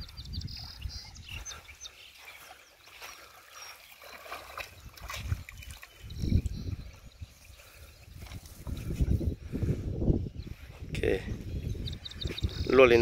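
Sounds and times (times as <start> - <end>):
fish splashing in water: 2.2 - 6.6.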